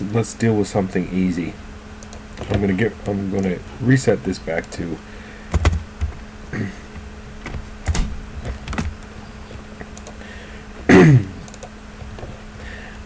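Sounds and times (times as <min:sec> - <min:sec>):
faint steady hum: 0:00.0 - 0:13.0
keyboard typing: 0:05.5 - 0:06.2, 0:06.9 - 0:10.2, 0:11.4 - 0:12.4.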